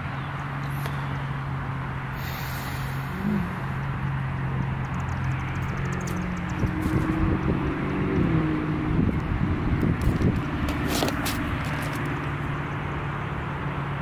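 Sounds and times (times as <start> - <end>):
outdoor background hiss: 0.0 - 5.4
low motor hum: 0.0 - 14.0.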